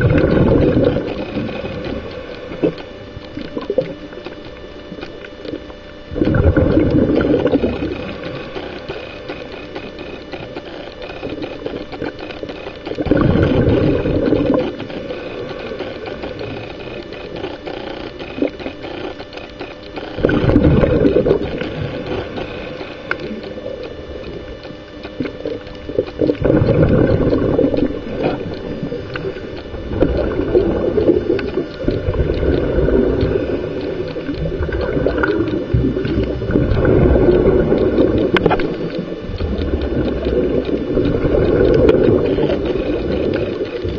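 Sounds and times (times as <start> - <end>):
underwater bubbles gurgling: 0.0 - 43.9
scuba inhalation: 6.2 - 11.4, 13.0 - 19.1, 20.0 - 23.8, 26.2 - 43.9.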